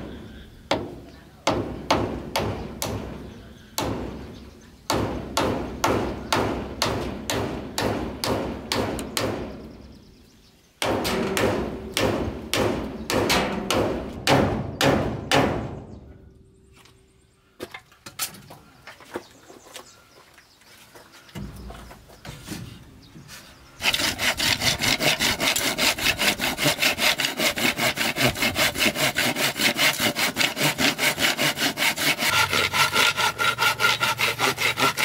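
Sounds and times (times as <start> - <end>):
hand tool striking wood: 10.8 - 15.6.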